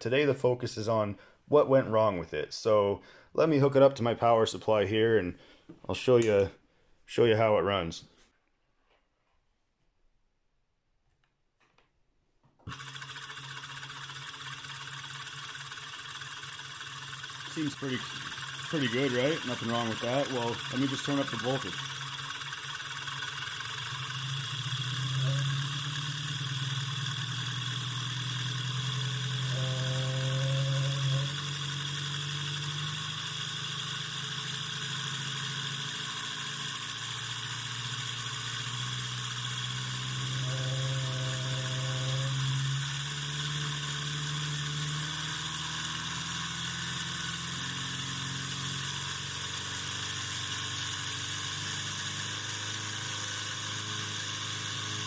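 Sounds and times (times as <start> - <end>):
electric motor hum and hiss: 12.7 - 55.0
vibrating buzz: 12.7 - 55.0.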